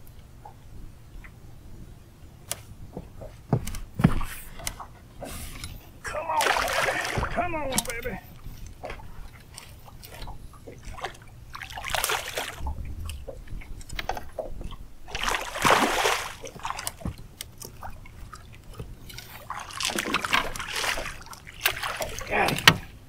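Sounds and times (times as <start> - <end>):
water splashing: 6.0 - 23.0.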